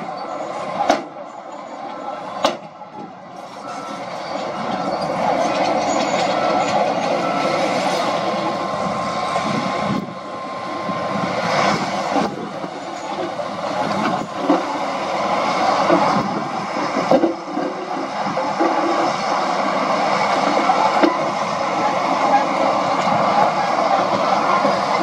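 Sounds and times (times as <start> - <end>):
heavy diesel machinery working: 0.0 - 25.0.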